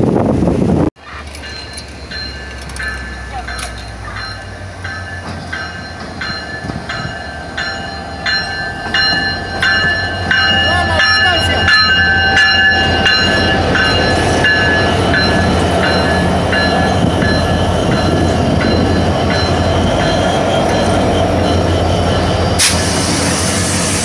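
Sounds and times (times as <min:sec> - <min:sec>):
wheels clicking over rail joints: 0:01.0 - 0:06.9
locomotive engines droning: 0:01.0 - 0:24.0
loud hiss: 0:22.6 - 0:24.0.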